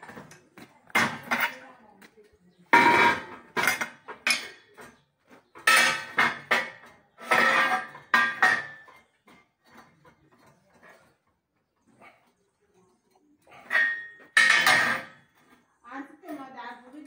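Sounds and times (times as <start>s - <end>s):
steel pieces clanking on metal table: 5.6s - 9.0s, 13.7s - 15.2s.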